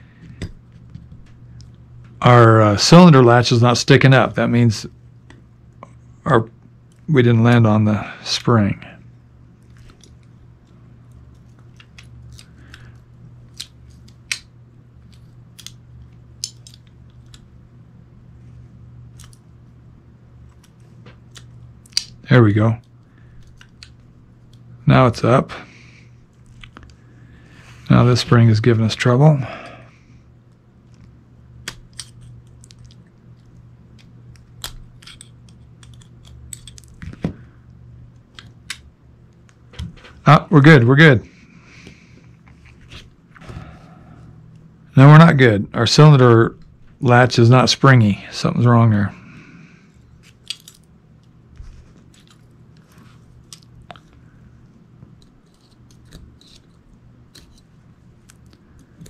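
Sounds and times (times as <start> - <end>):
steady low hum: 0.0 - 59.0
revolver parts clicking: 30.9 - 37.2, 50.2 - 51.4.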